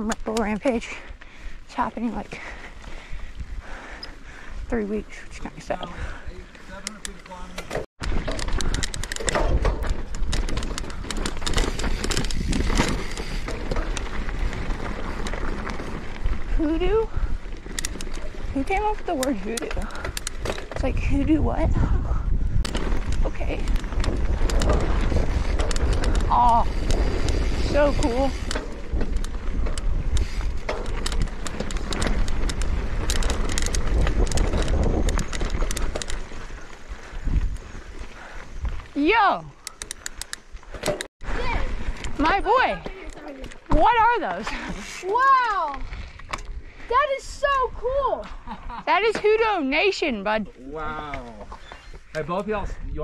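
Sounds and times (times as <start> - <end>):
wind buffeting microphone: 0.6 - 7.4, 8.0 - 44.8, 45.4 - 53.0
bike clattering and rattling: 2.0 - 47.3
tyres crunching on gravel: 6.5 - 20.8.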